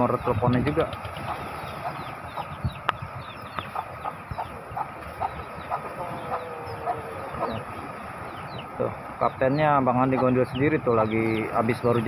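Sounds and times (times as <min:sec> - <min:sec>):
wind and waves rushing: 0:00.0 - 0:12.0
short bird calls: 0:01.0 - 0:08.8.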